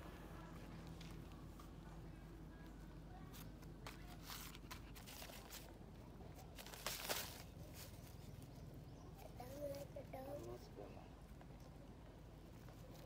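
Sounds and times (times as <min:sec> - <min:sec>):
low steady hum: 0:00.0 - 0:13.0
handling scuffs and rustles: 0:06.4 - 0:08.4.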